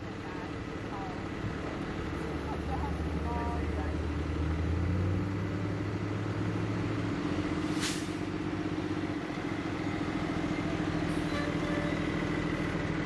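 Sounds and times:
fire truck engine drone: 0.0s - 13.0s
short air hiss: 7.7s - 8.2s.

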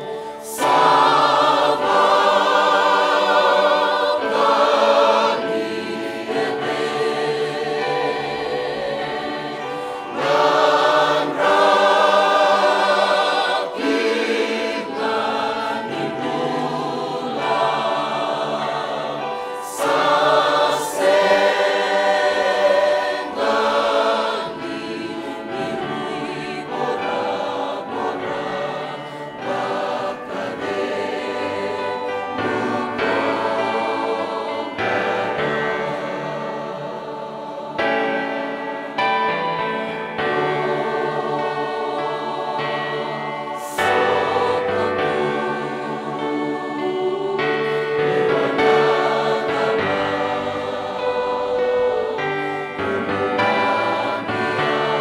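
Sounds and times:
choir singing a hymn: 0.0s - 55.0s.

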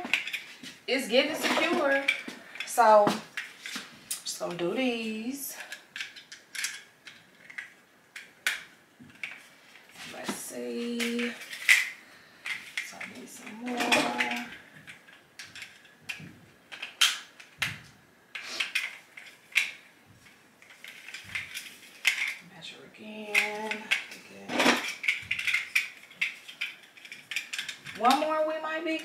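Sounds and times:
plastic links clicking and clattering: 0.0s - 4.3s, 5.6s - 17.9s, 18.6s - 22.4s, 23.2s - 29.0s.

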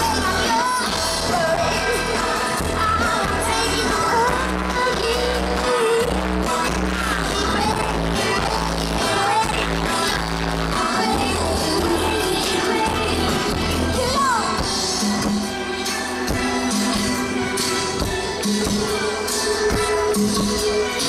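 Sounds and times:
woman singing into microphone: 0.0s - 16.4s
live band playing pop song: 0.0s - 21.0s.

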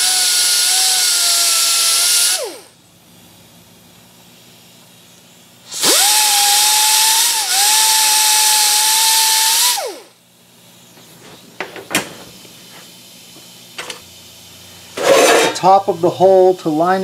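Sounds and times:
die grinder high whine: 0.0s - 2.7s, 5.7s - 10.1s.

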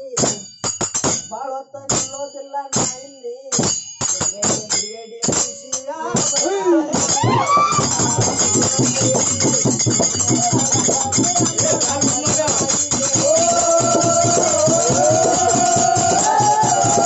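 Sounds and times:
jingling percussion rhythm: 0.0s - 17.0s
sharp percussion strikes: 0.0s - 17.0s
voices singing: 4.6s - 17.0s.

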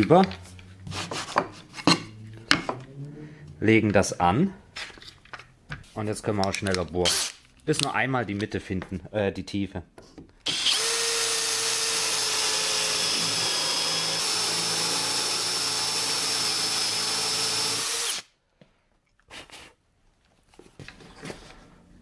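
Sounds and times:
cordless drill boring into wood: 10.5s - 18.3s.

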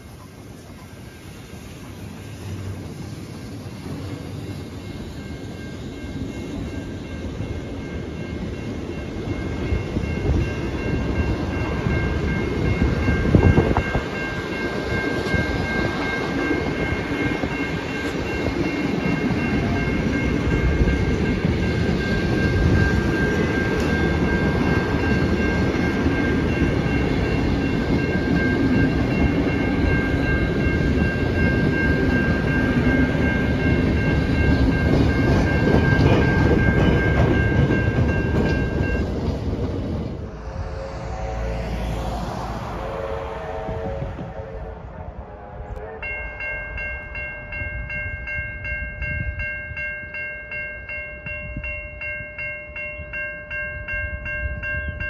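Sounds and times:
train wheels rumbling and clacking: 0.0s - 42.8s
level crossing warning bell: 4.6s - 39.6s, 45.8s - 55.0s
train clunk: 10.0s - 40.2s.

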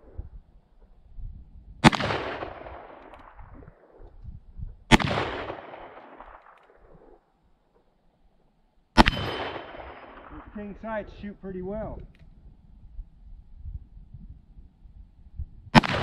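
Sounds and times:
revolver shots with echo: 1.8s - 3.4s, 4.9s - 6.5s, 9.0s - 10.5s
metallic ring of steel target: 9.0s - 10.8s.

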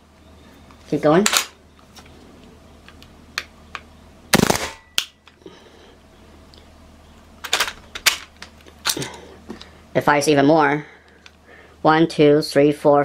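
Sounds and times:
air rifle firing bursts: 4.3s - 4.8s.

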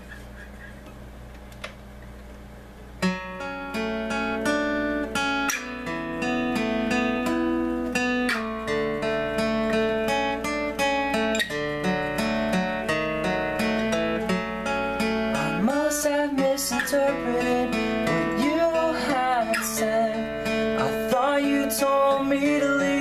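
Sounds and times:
acoustic guitar picking chords: 0.0s - 23.0s
small click: 1.3s - 2.2s.

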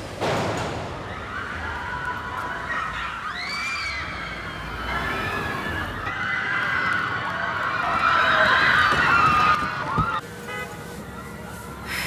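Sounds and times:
crowd screaming: 0.8s - 10.2s.

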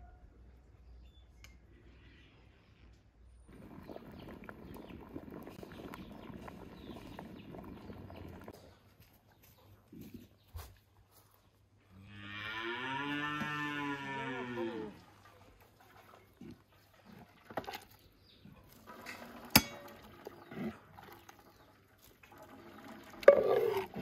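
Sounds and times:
cow mooing: 12.0s - 15.0s.

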